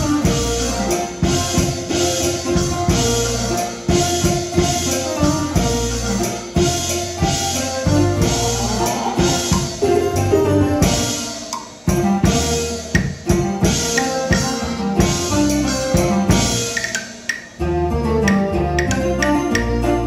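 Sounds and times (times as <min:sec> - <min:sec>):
opera stage band playing: 0:00.0 - 0:20.0
loud drum hits: 0:11.8 - 0:16.9.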